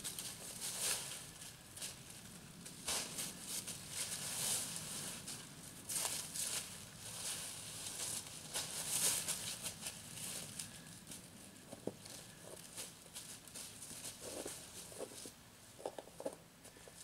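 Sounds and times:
rake scratching through leaves: 0:00.0 - 0:02.1, 0:02.7 - 0:10.8
dog walking in dry leaves: 0:00.0 - 0:11.3.

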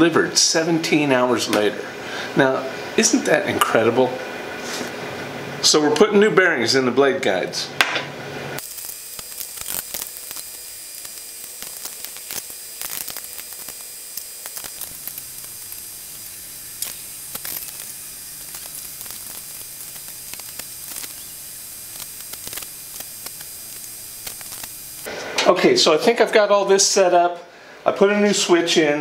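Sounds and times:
steady hiss: 0:08.6 - 0:25.9.

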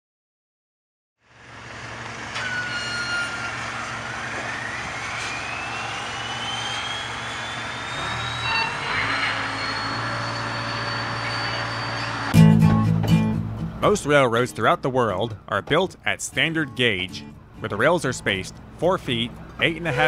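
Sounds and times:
whine rising in pitch: 0:01.4 - 0:12.6
machine rushing with low hum: 0:03.6 - 0:12.4.

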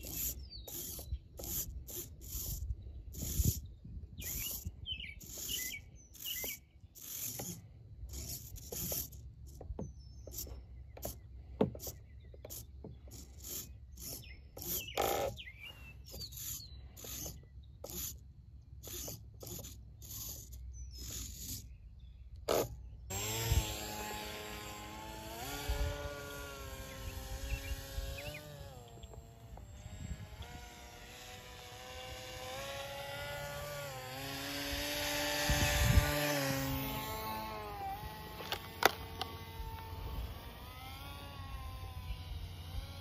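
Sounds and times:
birds chirping: 0:00.0 - 0:01.5, 0:02.7 - 0:07.7, 0:09.5 - 0:18.0, 0:19.8 - 0:23.4, 0:24.2 - 0:33.1
servos whirring: 0:00.0 - 0:43.0.

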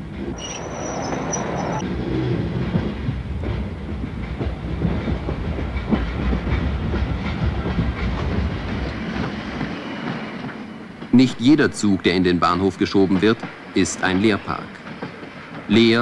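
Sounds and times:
train rumbling on track: 0:00.0 - 0:16.0
wheels clattering on rails: 0:00.1 - 0:16.0
high wheel squeal: 0:00.3 - 0:01.8.

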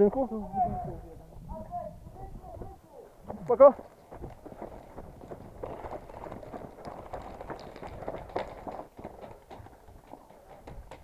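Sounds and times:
footsteps on snow: 0:03.2 - 0:10.5.

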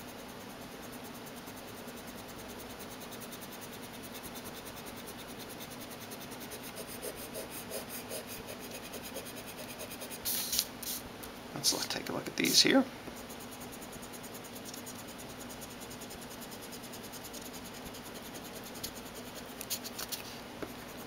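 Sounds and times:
eraser rubbing on paper: 0:01.8 - 0:11.0, 0:13.2 - 0:21.0.

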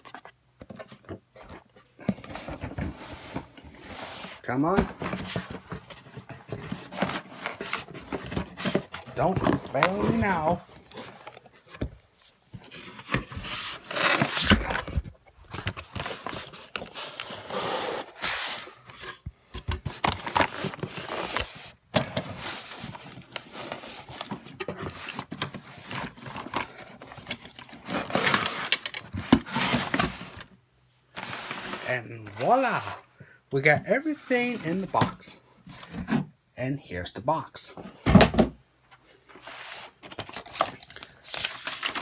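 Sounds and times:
cardboard box scraping and rustling: 0:00.0 - 0:11.8, 0:12.6 - 0:15.0.

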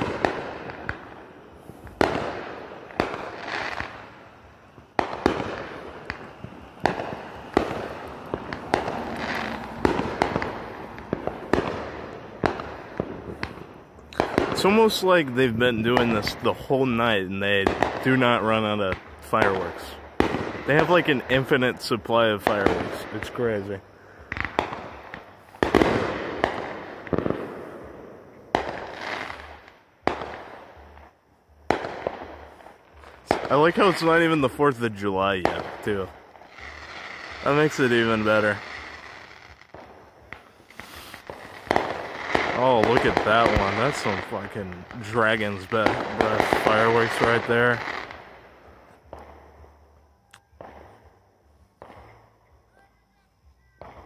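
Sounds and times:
fireworks bangs: 0:00.0 - 0:54.0
fireworks crackle: 0:00.0 - 0:54.0.

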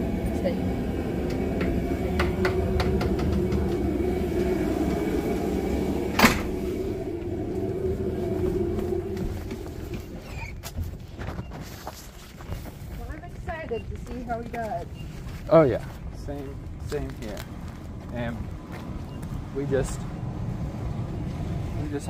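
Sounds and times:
vehicle engine idling: 0:00.0 - 0:10.3.

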